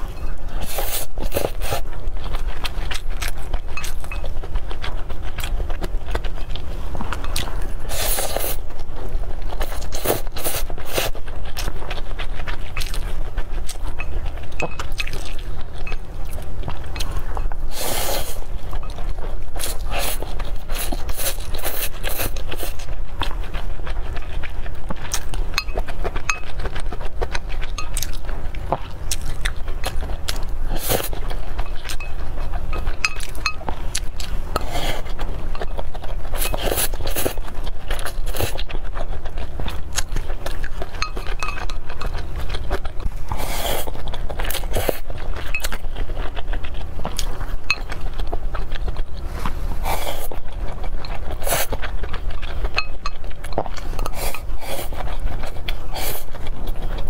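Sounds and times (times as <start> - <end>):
slurping and chewing noodles: 0.0 - 57.0
steady low hum: 0.0 - 57.0
chopsticks clinking on glass bowl: 3.8 - 4.3, 14.0 - 16.0, 25.6 - 26.5, 27.8 - 28.1, 32.8 - 33.7, 41.0 - 42.1, 52.7 - 53.3.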